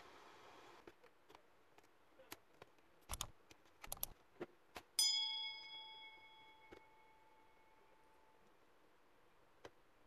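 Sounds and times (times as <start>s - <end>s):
bell-like ding: 5.0s - 8.4s.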